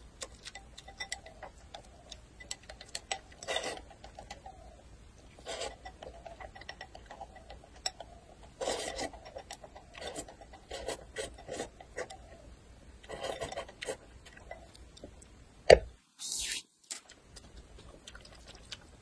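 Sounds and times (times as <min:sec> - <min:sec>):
slurping noodles: 0:08.6 - 0:09.2.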